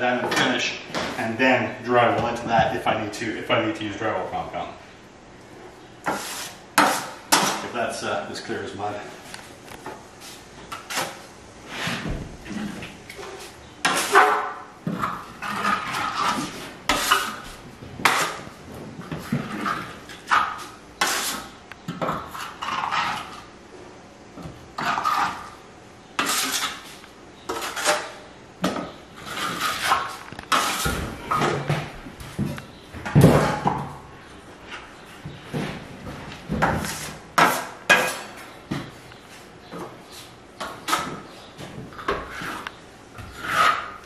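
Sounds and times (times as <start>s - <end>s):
trowel scraping plaster: 10.7s - 18.5s, 19.2s - 21.6s, 24.8s - 25.6s, 26.2s - 28.2s, 29.2s - 31.0s, 36.8s - 38.4s, 42.0s - 44.0s.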